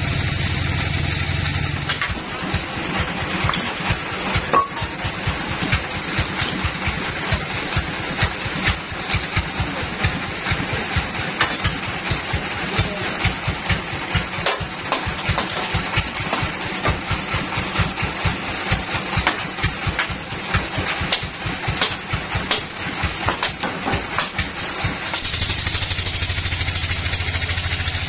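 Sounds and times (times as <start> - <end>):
engine idling with low pulse: 0.0 - 28.0
sharp knocks of hammering: 1.8 - 18.0, 18.7 - 25.0.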